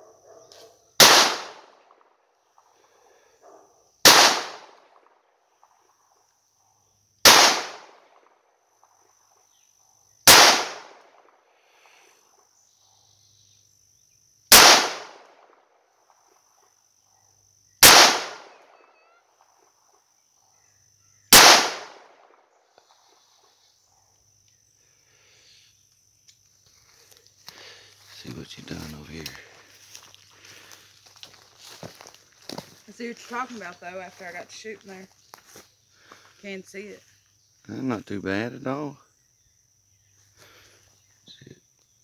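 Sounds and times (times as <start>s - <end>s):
pistol shots with echo: 1.0s - 2.0s, 4.0s - 5.0s, 7.2s - 8.2s, 10.2s - 11.3s, 14.5s - 15.5s, 17.8s - 18.8s, 21.3s - 22.4s.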